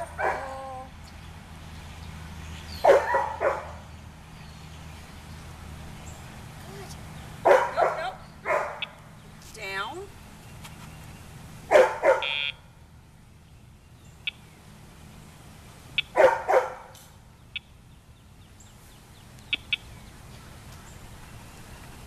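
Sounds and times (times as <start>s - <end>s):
dog barking: 0.1s - 0.6s, 2.8s - 3.8s, 7.4s - 8.9s, 11.7s - 12.4s, 16.0s - 16.9s.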